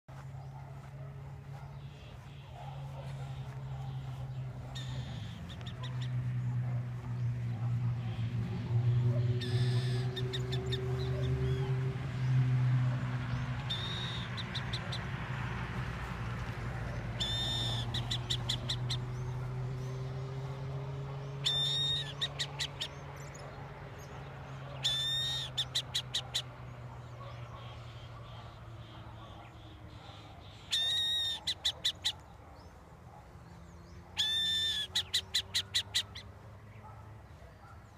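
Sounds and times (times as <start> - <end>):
traffic hum: 0.1 - 37.9
owl calling with rattling ticks: 1.8 - 6.2, 9.0 - 11.8, 13.6 - 15.1, 16.9 - 19.9, 21.4 - 23.5, 24.8 - 32.4, 34.2 - 36.3.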